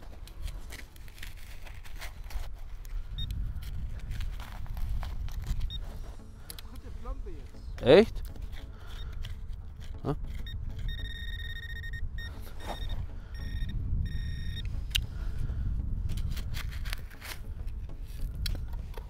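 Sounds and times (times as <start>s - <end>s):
trowel digging gravelly soil: 0.0s - 6.2s
metal detector beeps: 5.6s - 6.0s, 10.2s - 14.8s.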